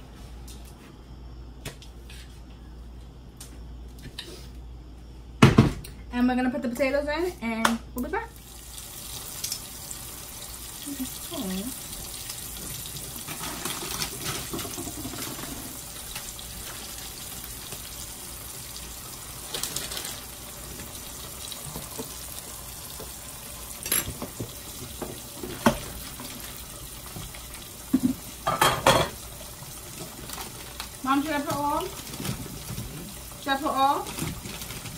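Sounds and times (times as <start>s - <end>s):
pork chops sizzling in pan: 8.4s - 34.9s.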